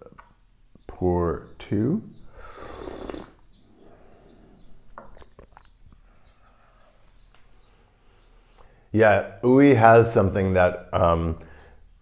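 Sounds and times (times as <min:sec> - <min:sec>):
small birds chirping: 0:00.0 - 0:12.0
person slurping tea: 0:02.4 - 0:03.4.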